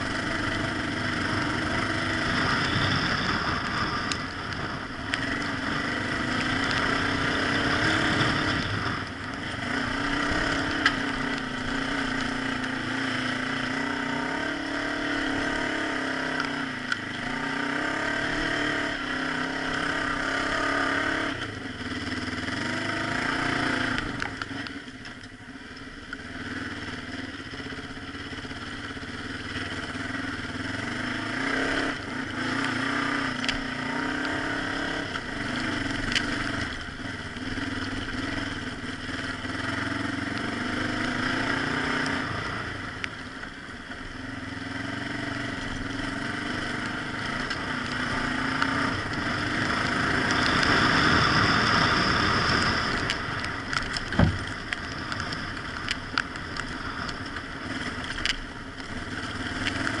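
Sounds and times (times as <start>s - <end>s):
motorcycle engine running: 0.0s - 60.0s
wind: 0.0s - 60.0s
knocks and clatter from bike: 52.6s - 60.0s.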